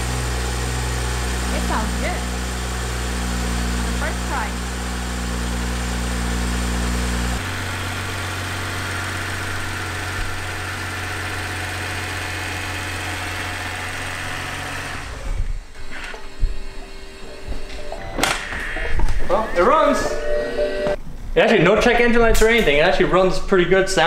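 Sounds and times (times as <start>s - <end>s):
car engine idling: 0.0s - 15.8s.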